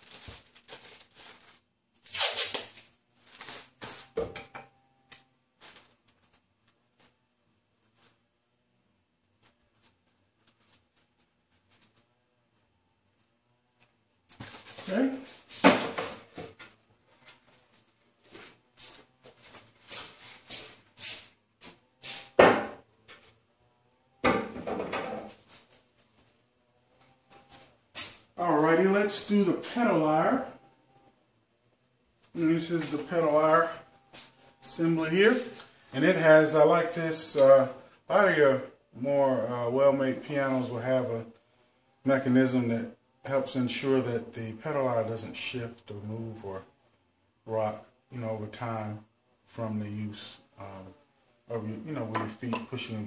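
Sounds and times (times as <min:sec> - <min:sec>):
plastic bag crinkling: 0:00.0 - 0:03.8
objects knocking and clattering: 0:24.2 - 0:25.4.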